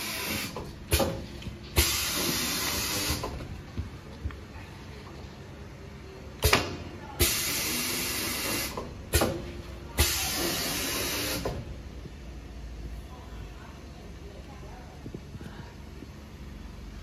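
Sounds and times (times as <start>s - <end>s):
pneumatic carriage hissing: 0.0s - 3.5s, 6.4s - 11.7s.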